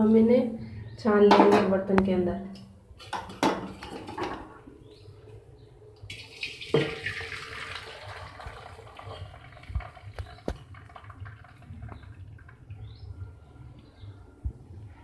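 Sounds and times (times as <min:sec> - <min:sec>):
water splashing into a strainer: 0:06.1 - 0:12.6.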